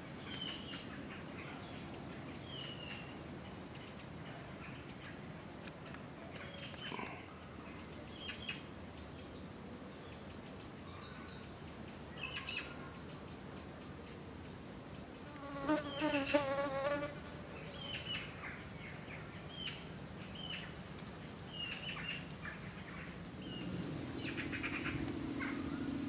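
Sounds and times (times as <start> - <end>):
flying insect buzzing: 15.3 - 17.2, 23.4 - 26.0
small bird chirping: 19.2 - 26.0.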